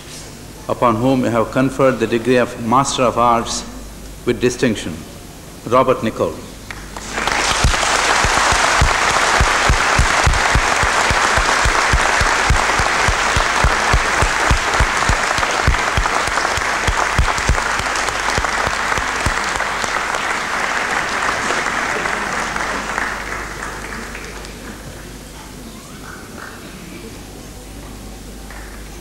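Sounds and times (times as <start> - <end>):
audience applauding: 6.7 - 25.3, 28.4 - 29.0.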